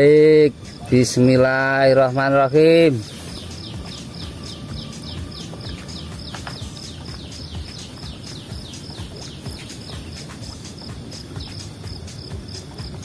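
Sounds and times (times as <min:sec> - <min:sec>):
low steady rumble: 0:00.7 - 0:13.0
animal chirping: 0:02.9 - 0:13.0.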